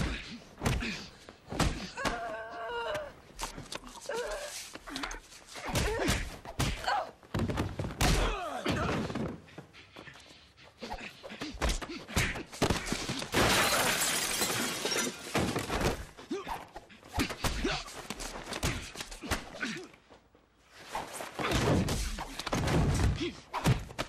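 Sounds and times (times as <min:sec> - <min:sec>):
men grunting and breathing hard: 0:00.0 - 0:07.3, 0:08.1 - 0:13.4, 0:16.0 - 0:20.3
punches and scuffling: 0:00.0 - 0:13.7, 0:15.2 - 0:24.0
glass shattering: 0:13.4 - 0:15.6.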